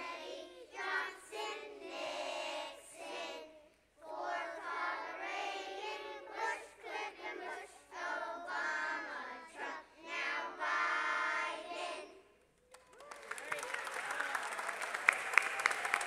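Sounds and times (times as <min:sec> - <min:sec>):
children singing: 0:00.0 - 0:12.3.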